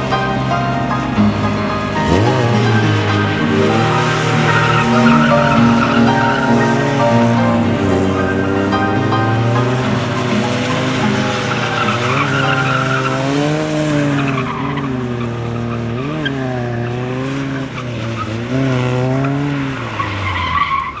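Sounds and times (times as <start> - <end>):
tyres hissing and scrubbing: 0.0 - 16.5
car engine revving hard: 0.0 - 21.0.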